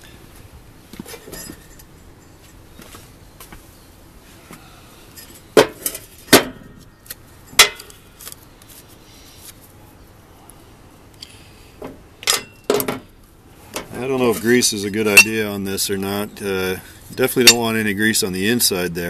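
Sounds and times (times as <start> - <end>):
metal tools clinking: 1.0 - 2.8, 5.1 - 6.1, 13.8 - 15.5, 17.1 - 17.7.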